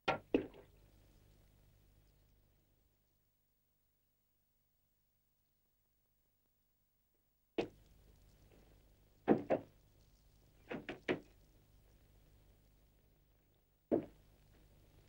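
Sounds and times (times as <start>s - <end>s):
film soundtrack hum and hiss: 7.1s - 15.0s
sharp knocks and thumps: 9.3s - 9.7s, 10.7s - 11.3s, 13.9s - 14.2s.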